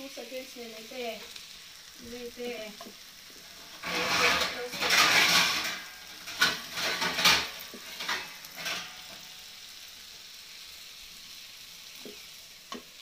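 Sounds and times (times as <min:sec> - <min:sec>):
frying sizzle: 0:00.0 - 0:13.0
metal ladle scraping pan: 0:03.4 - 0:09.4.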